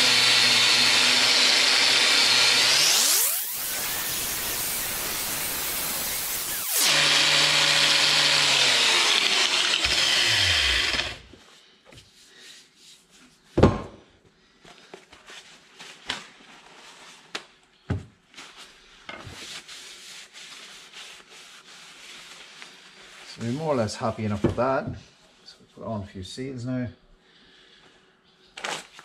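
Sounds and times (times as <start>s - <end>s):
angle grinder on steel: 0.0s - 11.3s.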